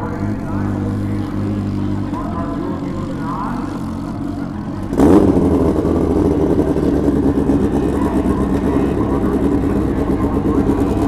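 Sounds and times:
motorcycle engine idling and revving: 0:00.0 - 0:11.0.

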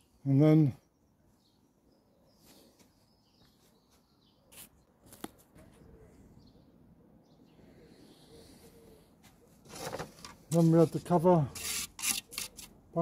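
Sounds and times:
faint bird chirps: 0:05.6 - 0:09.6.

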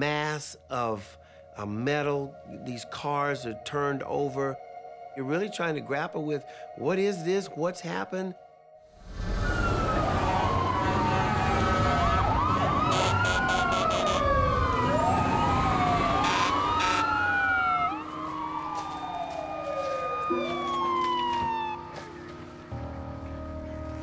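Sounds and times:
emergency sirens wailing: 0:09.0 - 0:24.0
low vehicle rumble: 0:18.5 - 0:24.0.

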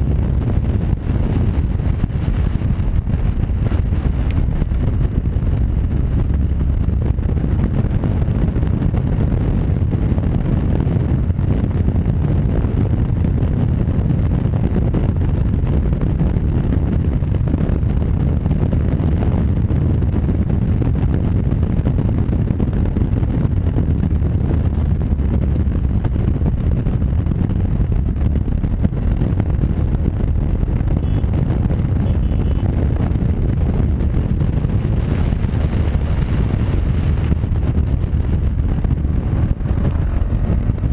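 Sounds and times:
motorcycle engine rumble: 0:00.0 - 0:40.9
wind rushing over microphone: 0:00.0 - 0:40.9.

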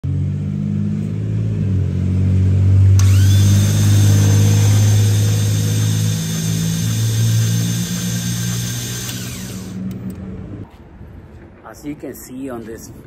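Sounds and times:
rising engine whine: 0:00.0 - 0:10.7
car engine running: 0:03.0 - 0:10.2.

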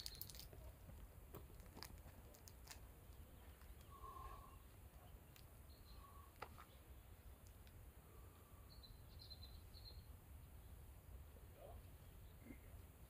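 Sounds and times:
faint high chirps: 0:03.1 - 0:07.2, 0:08.0 - 0:10.8.

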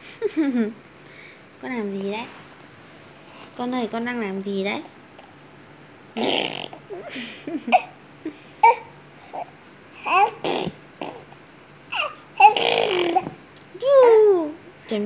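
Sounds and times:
baby babbling and cooing: 0:08.6 - 0:11.3, 0:11.9 - 0:13.4.

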